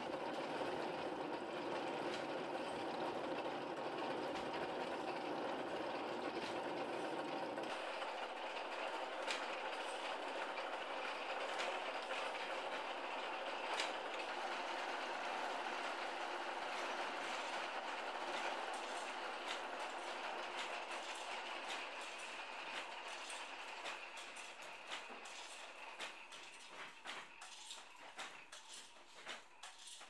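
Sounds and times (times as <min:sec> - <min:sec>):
wooden reel rattling: 0:15.8 - 0:30.0.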